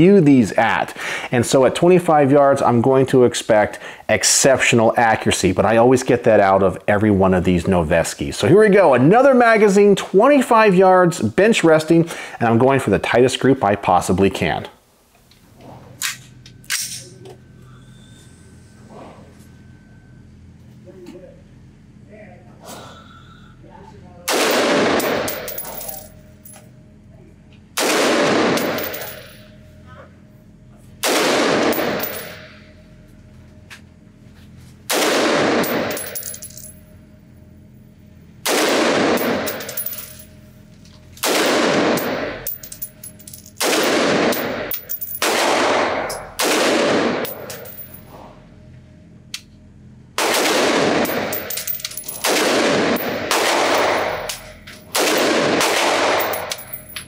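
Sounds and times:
rifle shots echoing indoors: 0:24.3 - 0:26.0, 0:27.8 - 0:29.3, 0:31.0 - 0:32.6, 0:34.9 - 0:36.4, 0:38.4 - 0:40.2, 0:41.2 - 0:42.6, 0:43.6 - 0:47.5, 0:50.2 - 0:56.8.

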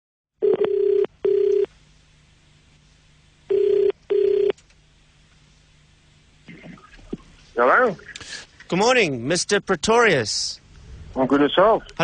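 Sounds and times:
telephone ringback tone: 0:00.4 - 0:01.7, 0:03.5 - 0:04.5.

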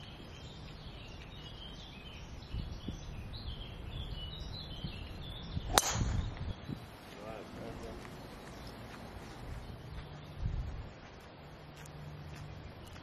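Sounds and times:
birds chirping: 0:00.0 - 0:13.0
golf club striking ball: 0:05.7 - 0:06.4.

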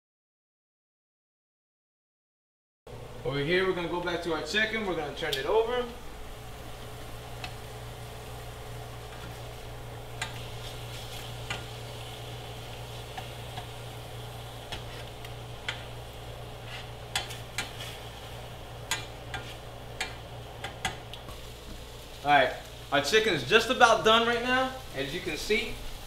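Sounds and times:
chicken frying in oil: 0:05.0 - 0:26.0
metal tongs clicking on pan: 0:10.1 - 0:10.4, 0:11.4 - 0:11.7, 0:17.1 - 0:17.8, 0:18.8 - 0:21.2.

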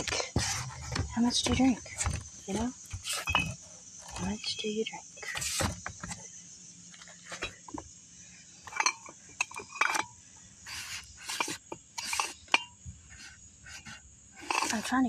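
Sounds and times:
glass bottles clinking: 0:03.0 - 0:04.4, 0:08.7 - 0:10.2.

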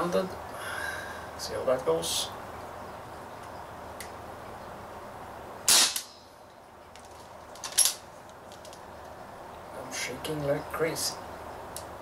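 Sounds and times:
air pistol shot crack: 0:05.7 - 0:06.2.

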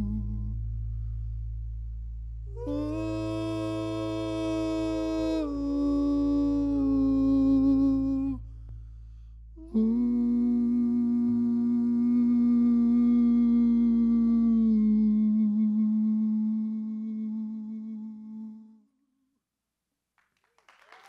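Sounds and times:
low steady drone: 0:00.0 - 0:18.8
singers humming held notes: 0:02.6 - 0:08.4.

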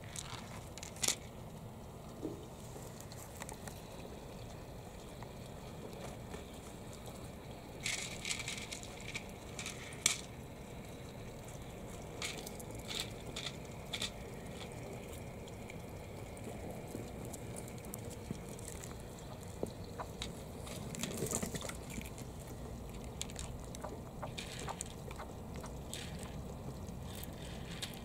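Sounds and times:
steady low background noise: 0:00.0 - 0:28.0
turtles crunching on gravel: 0:16.8 - 0:28.0.

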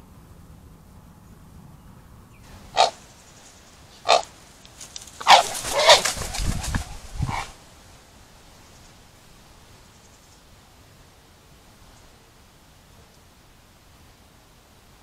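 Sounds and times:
harsh barking animal calls: 0:02.6 - 0:03.0, 0:03.9 - 0:04.3, 0:05.2 - 0:06.2, 0:07.2 - 0:07.6.

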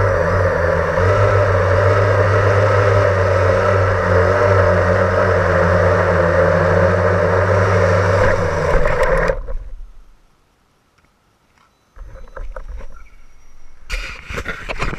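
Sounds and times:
quadcopter motors whirring: 0:00.0 - 0:09.5.

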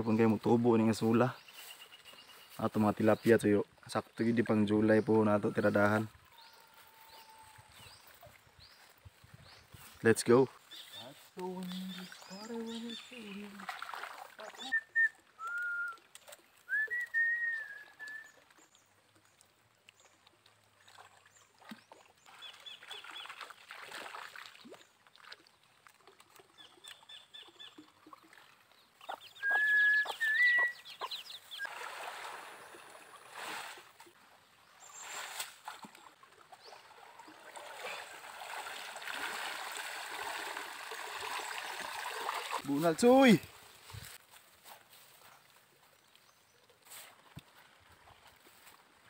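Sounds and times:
water sloshing and splashing: 0:10.6 - 0:17.2, 0:18.0 - 0:30.3, 0:31.4 - 0:49.0
birds whistling: 0:29.0 - 0:31.7.

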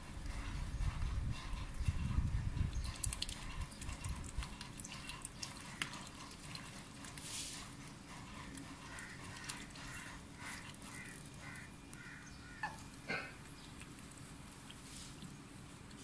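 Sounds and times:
duck bills clicking on metal bowl: 0:02.6 - 0:07.3, 0:08.2 - 0:13.0.

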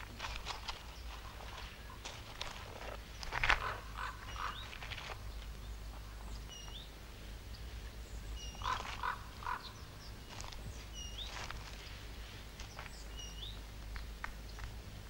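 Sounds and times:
bird chirps: 0:03.6 - 0:11.5, 0:12.7 - 0:13.6.

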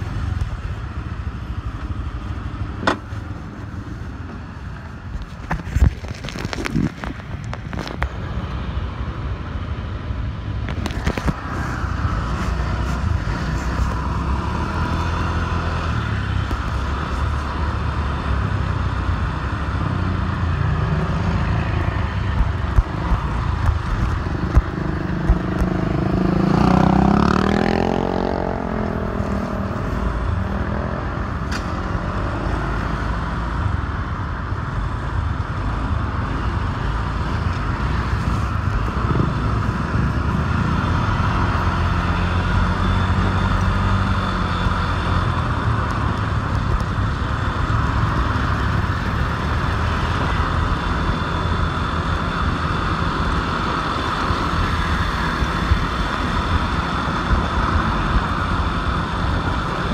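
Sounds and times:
road noise: 0:00.0 - 0:59.9.

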